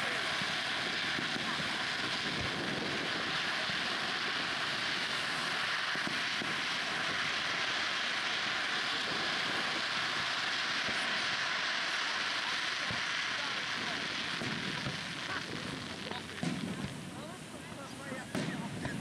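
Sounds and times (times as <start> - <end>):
fireworks crackling hiss: 0.0 - 19.0
soft low firework thumps: 13.8 - 19.0.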